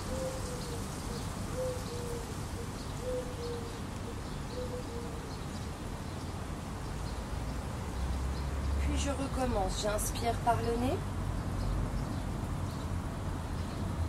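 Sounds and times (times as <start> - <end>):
dove cooing: 0.0 - 5.5
small birds chirping: 0.0 - 14.0.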